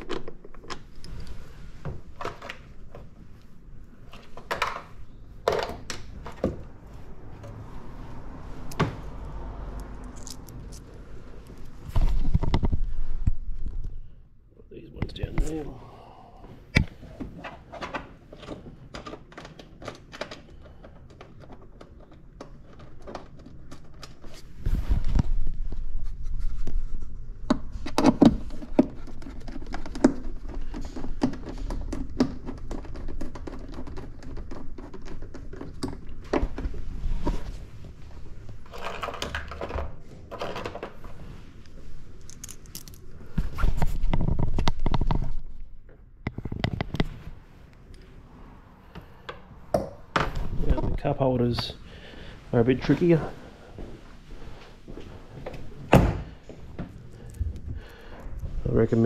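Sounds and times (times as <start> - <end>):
plastic parts thunking: 4.1 - 6.7.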